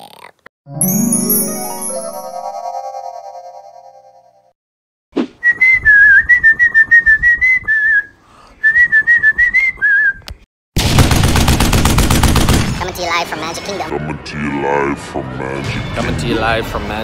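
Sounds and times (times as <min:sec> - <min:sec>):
person whistling a tune: 0:05.4 - 0:10.2.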